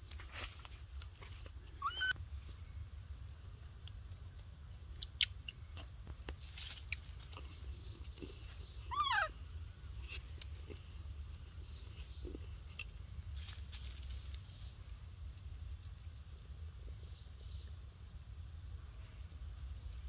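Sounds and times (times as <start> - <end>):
baby monkey high-pitched calls: 1.8 - 2.2, 8.8 - 9.4.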